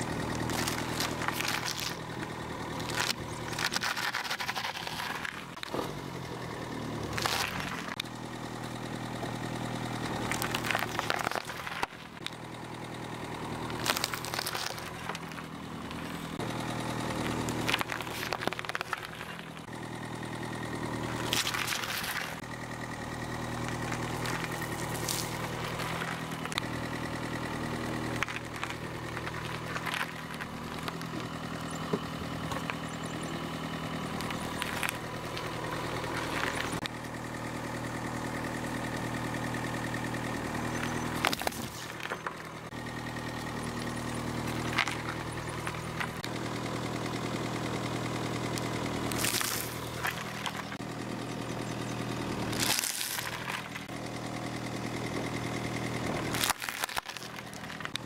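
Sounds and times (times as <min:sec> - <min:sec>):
car engine idling: 0:00.0 - 0:58.0
tyre crushing food: 0:00.3 - 0:06.0, 0:07.0 - 0:08.0, 0:10.2 - 0:12.2, 0:13.7 - 0:19.7, 0:21.1 - 0:22.4, 0:27.8 - 0:32.9, 0:41.0 - 0:42.4, 0:49.1 - 0:50.8, 0:52.4 - 0:53.9, 0:56.2 - 0:58.0.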